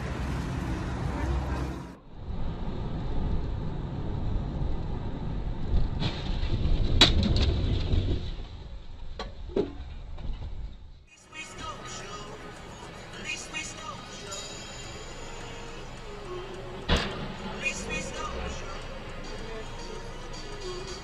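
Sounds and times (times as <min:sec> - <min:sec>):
car engine and road rumble: 0:00.0 - 0:21.0.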